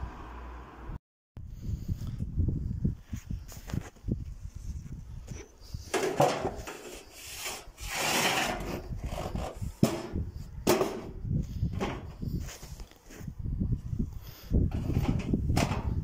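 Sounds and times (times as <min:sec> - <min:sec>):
rubbing and knocking handling noise: 0:05.3 - 0:13.2, 0:14.7 - 0:16.0.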